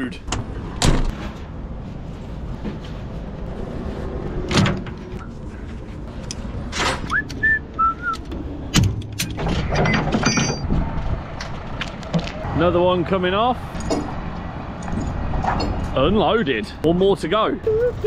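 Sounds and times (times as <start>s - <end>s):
low engine hum: 1.4s - 16.9s
person whistling: 7.1s - 8.2s, 17.7s - 18.0s
knocks and clanks: 8.2s - 12.4s, 13.7s - 16.0s.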